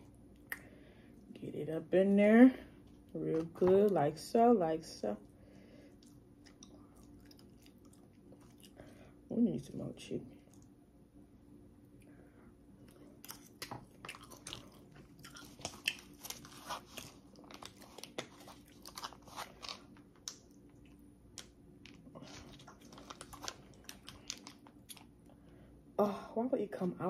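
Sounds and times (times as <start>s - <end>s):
person chewing crunchy food: 5.2s - 9.1s, 12.8s - 25.4s.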